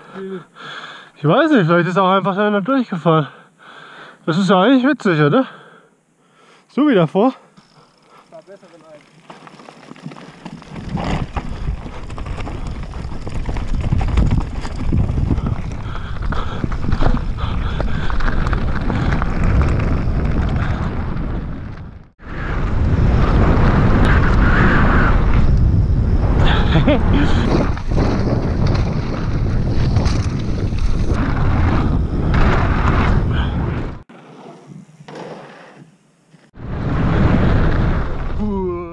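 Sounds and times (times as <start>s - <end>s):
bike tyre rumble: 7.6s - 38.9s
bike rattling over stones: 7.8s - 22.1s, 26.5s - 33.5s
wind noise on microphone: 10.5s - 34.0s.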